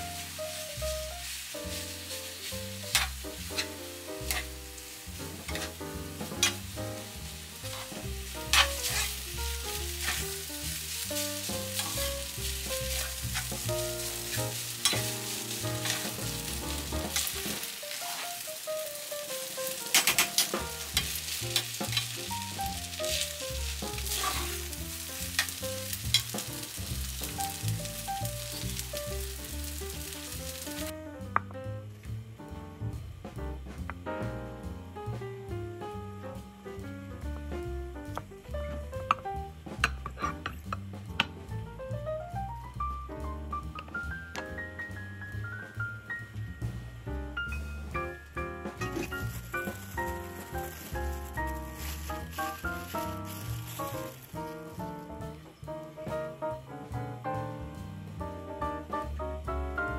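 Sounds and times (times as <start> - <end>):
rice sizzling in a pan: 0.0 - 32.2, 38.0 - 56.7
light background music: 0.0 - 59.9
spatula tapping and scraping pan: 2.9 - 4.6, 5.2 - 6.7, 7.7 - 9.2, 9.8 - 10.3, 11.4 - 18.2, 19.9 - 22.2, 39.1 - 41.4.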